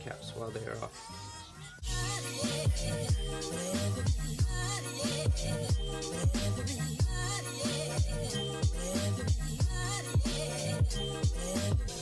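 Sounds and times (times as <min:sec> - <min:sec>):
music with deep bass drum: 0:01.8 - 0:07.4, 0:08.0 - 0:12.0.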